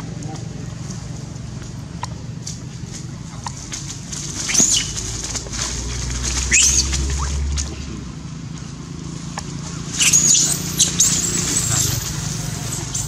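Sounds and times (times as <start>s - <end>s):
monkeys squealing: 4.3s - 5.2s, 6.3s - 7.5s, 10.0s - 13.0s.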